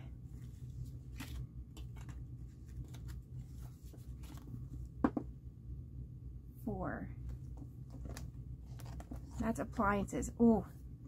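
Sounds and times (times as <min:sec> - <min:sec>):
banknotes rustling: 0:00.4 - 0:04.7.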